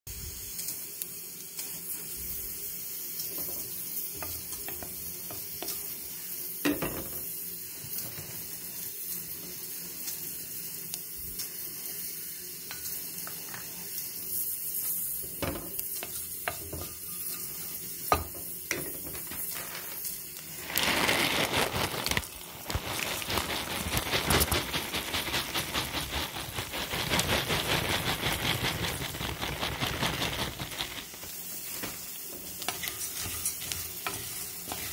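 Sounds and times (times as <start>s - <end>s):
oil sizzling in a pot: 0.1s - 34.9s
puffed rice crackling in oil: 0.1s - 34.9s
mustard seeds popping: 20.4s - 31.9s.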